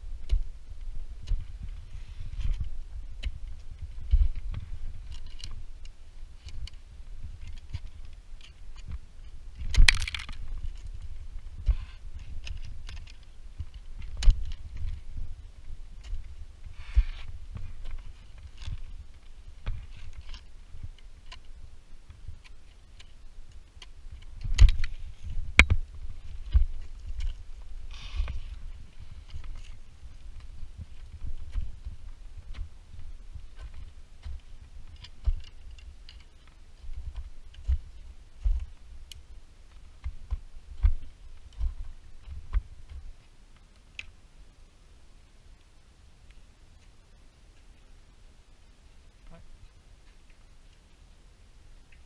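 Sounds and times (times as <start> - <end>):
climbing gear clicking and scraping: 0.2 - 44.2
footsteps on ice and rock: 23.8 - 43.3.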